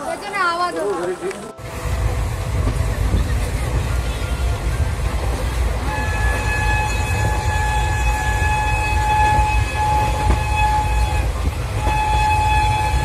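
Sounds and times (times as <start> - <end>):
train rumbling: 0.0 - 13.0
train horn blast: 3.7 - 13.0.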